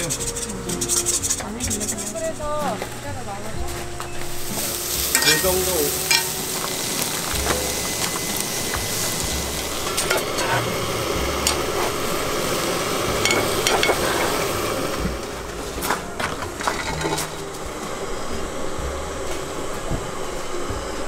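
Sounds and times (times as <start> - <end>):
metal spatula scraping pan: 4.2 - 14.6
food sizzling in a pan: 4.2 - 15.6.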